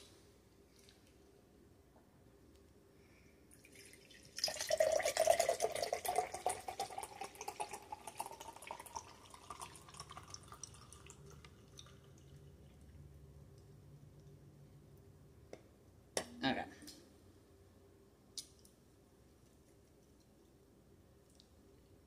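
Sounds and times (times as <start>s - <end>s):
drink pouring into a glass: 3.5s - 13.1s.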